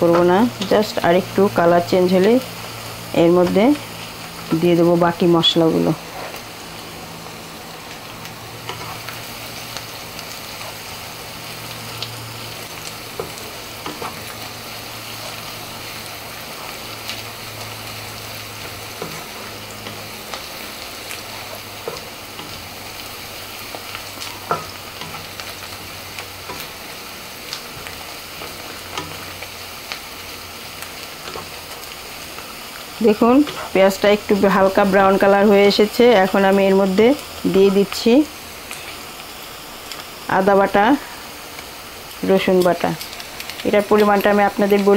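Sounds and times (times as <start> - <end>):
onions sizzling in oil: 0.0 - 44.9
spatula scraping and tapping pan: 24.2 - 26.8, 27.7 - 29.4.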